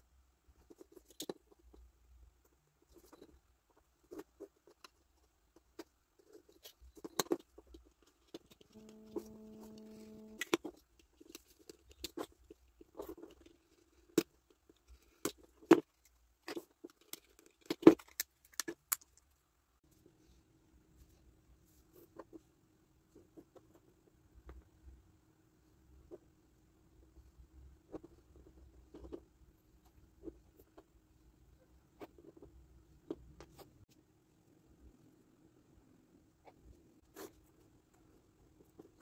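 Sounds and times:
steady pitched hum: 0:08.6 - 0:10.6.

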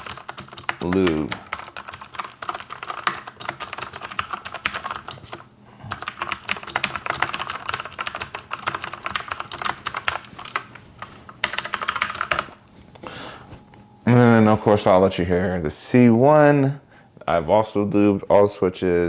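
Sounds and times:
clicky mechanical keyboard typing: 0:00.0 - 0:10.7, 0:11.4 - 0:12.6.

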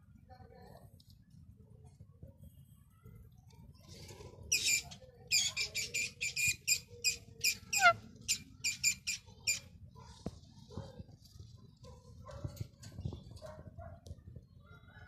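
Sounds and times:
parakeet shrill screeching calls: 0:07.4 - 0:09.6.

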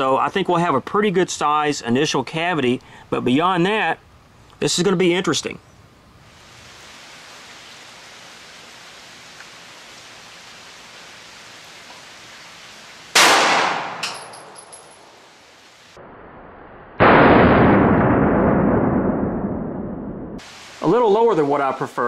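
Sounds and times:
slowed low gunshot blast: 0:13.2 - 0:14.1, 0:16.0 - 0:20.4
pistol shot echoing: 0:13.2 - 0:14.3.

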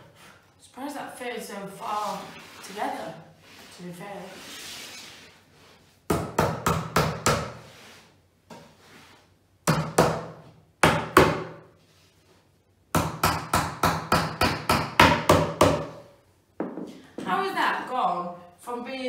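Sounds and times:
hammer striking particleboard: 0:09.6 - 0:11.6, 0:13.0 - 0:16.0.

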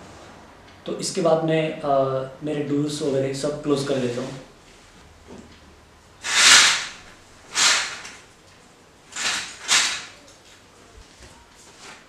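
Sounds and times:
doors closing with swishes: 0:06.2 - 0:08.2.

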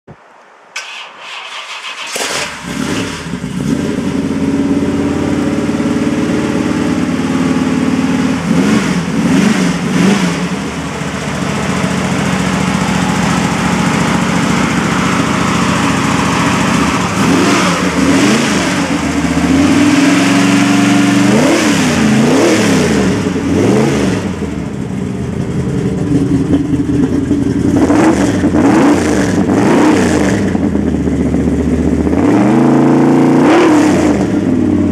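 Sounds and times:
engine cranking and starting: 0:00.8 - 0:03.8
engine idling and revving: 0:00.8 - 0:34.9.

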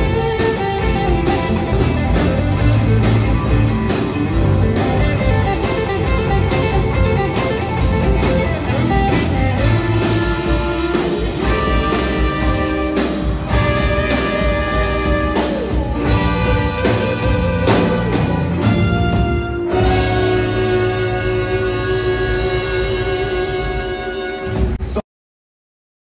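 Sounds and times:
electric guitar: 0:00.0 - 0:24.8
horn section: 0:00.0 - 0:24.8
live rock band playing: 0:00.0 - 0:24.8
steady drum beat: 0:00.0 - 0:24.8.

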